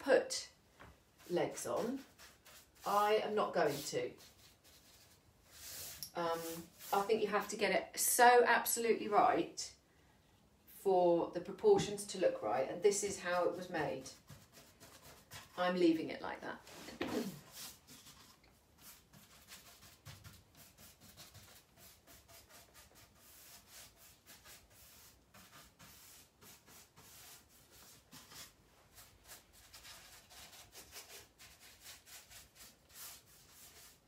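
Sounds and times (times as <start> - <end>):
paintbrush strokes on wood: 1.2 - 7.5, 16.7 - 34.0.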